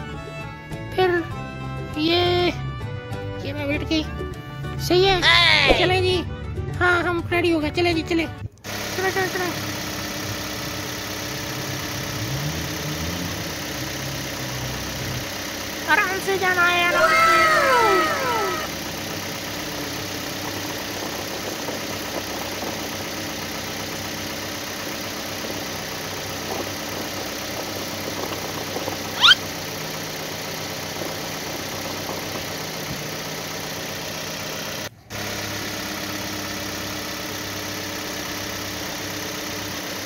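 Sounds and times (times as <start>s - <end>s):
toy truck motor hum: 0.0s - 2.0s, 8.6s - 40.0s
short sharp rising chirp: 29.2s - 29.5s.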